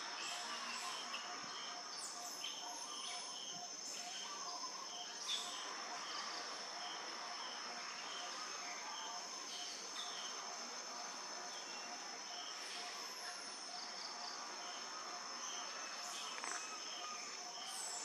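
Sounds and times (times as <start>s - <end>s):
insect chirps: 0.0s - 18.0s
insect drone: 0.0s - 18.0s.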